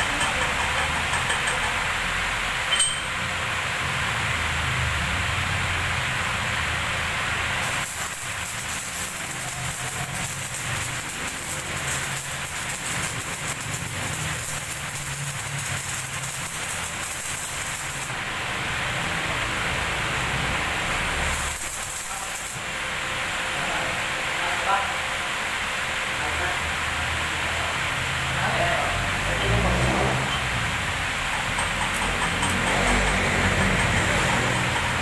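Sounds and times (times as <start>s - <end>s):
arc welding crackling: 5.6s - 23.0s, 28.2s - 35.0s.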